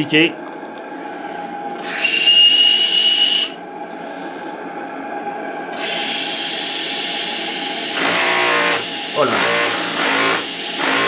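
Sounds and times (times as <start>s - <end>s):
high steady squeal: 1.8s - 3.6s
gas burner hissing: 5.8s - 10.8s.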